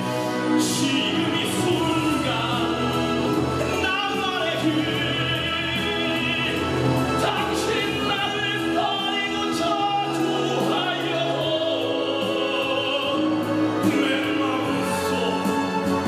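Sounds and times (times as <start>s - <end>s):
orchestral backing track: 0.0s - 16.0s
man singing a ballad: 0.4s - 16.0s.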